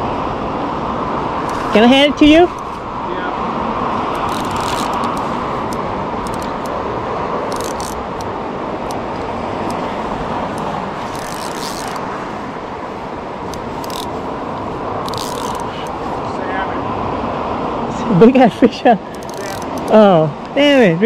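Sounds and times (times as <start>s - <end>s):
creek rushing: 0.0s - 21.0s
fishing rod rustles: 1.4s - 1.8s, 4.1s - 6.8s, 7.5s - 12.2s, 13.4s - 16.2s, 19.1s - 20.0s.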